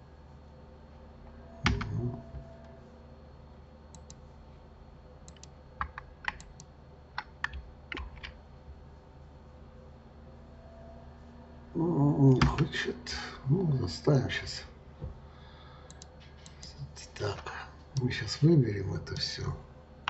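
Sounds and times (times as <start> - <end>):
faint steady hum: 0.0 - 20.0
keyboard key clicks: 5.3 - 8.3.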